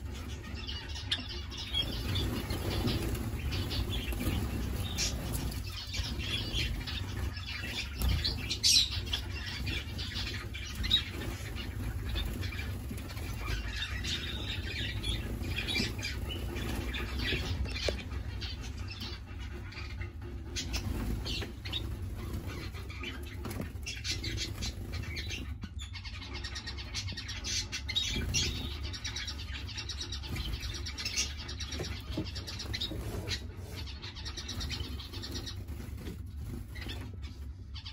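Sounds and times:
wing flutters: 0.0s - 25.5s
finches chirping: 0.0s - 37.9s
steady low hum: 0.0s - 37.9s.

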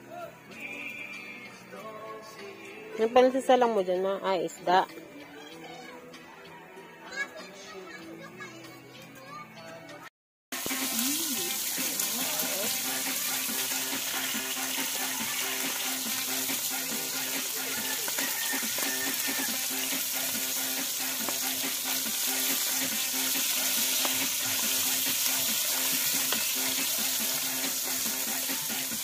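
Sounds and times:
fish sizzling in hot oil: 10.6s - 29.0s.

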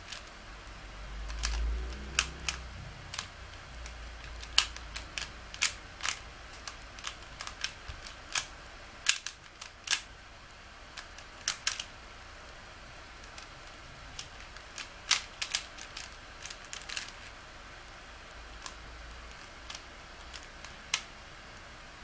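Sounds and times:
puzzle cube layers clicking: 1.2s - 10.1s, 10.9s - 12.0s, 13.2s - 17.4s, 18.4s - 21.1s.

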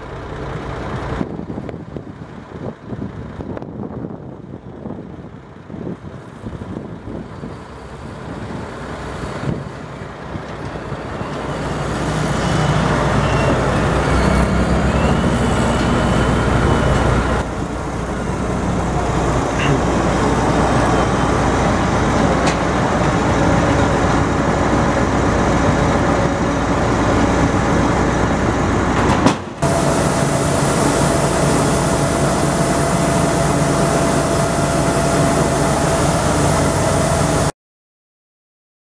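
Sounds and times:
steady engine whine: 0.0s - 37.5s
tractor engine running: 0.0s - 37.5s
auger pouring grain: 29.6s - 37.5s.

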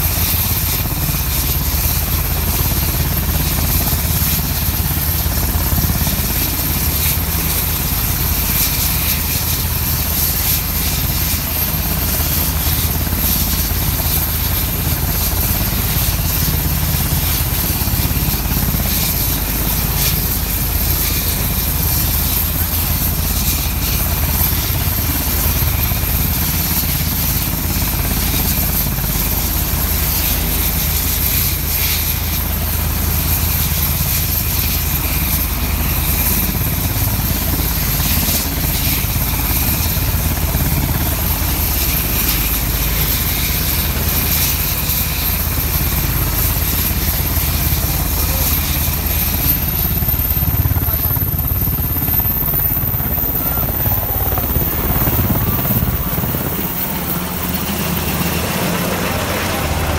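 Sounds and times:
helicopter rotor thrum: 0.0s - 59.9s
turbine whine: 0.0s - 59.9s.

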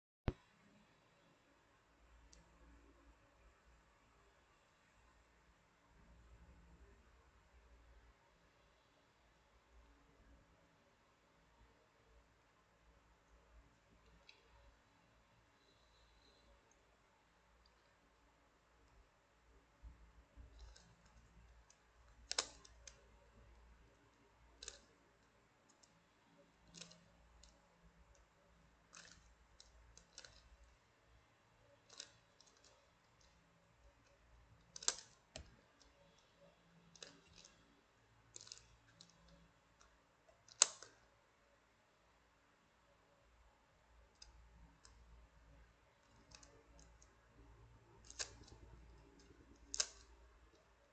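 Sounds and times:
plastic puzzle pieces clicking: 20.4s - 23.1s, 23.9s - 26.0s, 26.6s - 28.2s, 28.8s - 30.7s, 31.7s - 41.1s, 46.0s - 50.7s.

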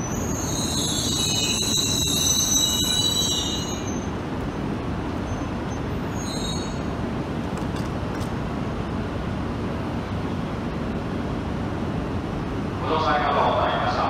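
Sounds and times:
high metallic squeal: 0.0s - 4.1s, 5.3s - 6.9s
train low rumble: 0.0s - 14.0s.

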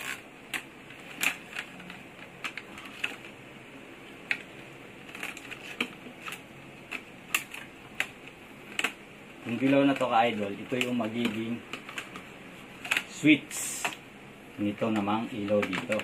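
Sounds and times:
plastic boxes clicking: 5.1s - 13.2s, 14.8s - 16.0s.

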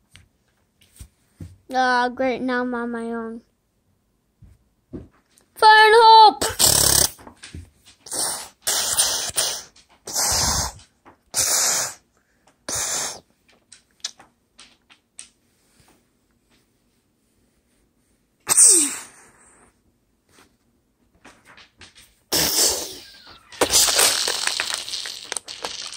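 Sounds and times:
child making explosion noises: 5.6s - 7.2s, 8.1s - 10.8s, 18.5s - 19.3s, 22.3s - 25.9s
plastic figures clicking on wood: 13.4s - 15.4s.

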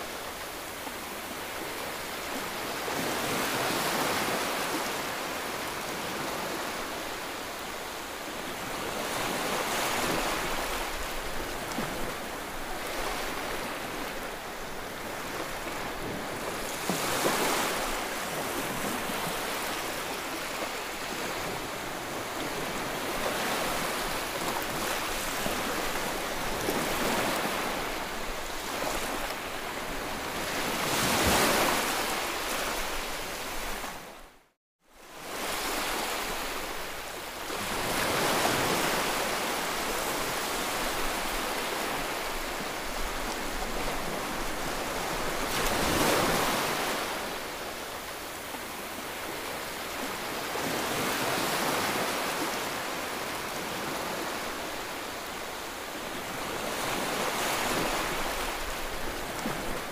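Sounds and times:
waves surging against seawall: 8.3s - 29.5s, 35.2s - 55.1s.

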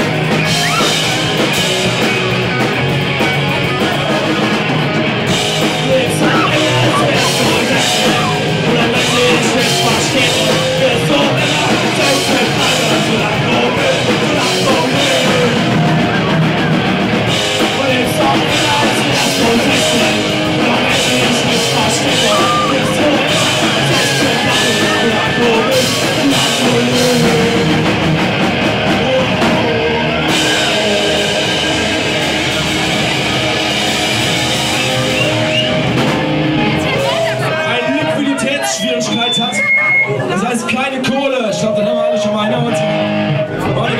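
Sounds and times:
drum kit: 0.0s - 43.9s
electric guitars: 0.0s - 43.9s
person singing into microphone: 5.6s - 16.4s, 17.6s - 28.0s.

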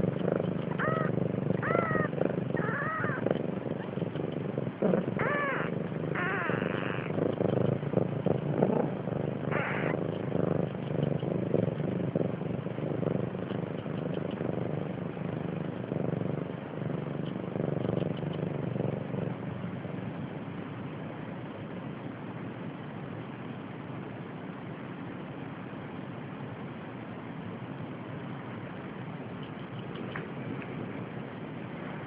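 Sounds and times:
cat purring: 0.0s - 22.1s, 28.5s - 32.0s
kitten squeaking: 0.7s - 3.3s, 5.2s - 7.2s, 9.5s - 10.0s.

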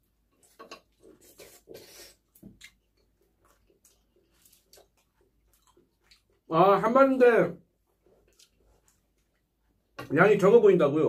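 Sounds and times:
chewing fried chicken: 0.0s - 6.5s, 7.9s - 10.0s.

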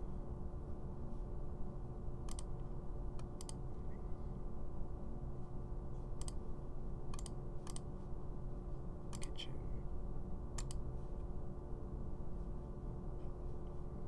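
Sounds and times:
low background hum: 0.0s - 14.0s
computer mouse clicks: 2.3s - 2.6s, 3.2s - 3.6s, 6.2s - 6.4s, 7.1s - 7.9s, 9.1s - 9.4s, 10.6s - 10.8s.

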